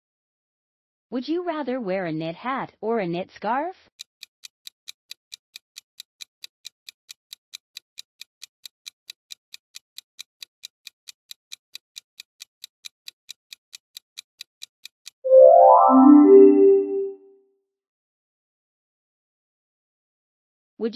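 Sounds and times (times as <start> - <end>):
clock-like timer ticking: 3.9 - 15.2
short rising musical jingle: 15.3 - 17.2.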